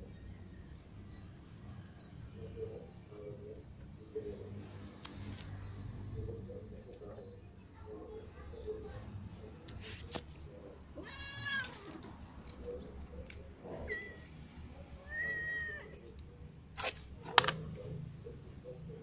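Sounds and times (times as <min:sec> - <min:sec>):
cat meowing: 0:11.0 - 0:11.9, 0:13.8 - 0:14.3, 0:15.0 - 0:16.0.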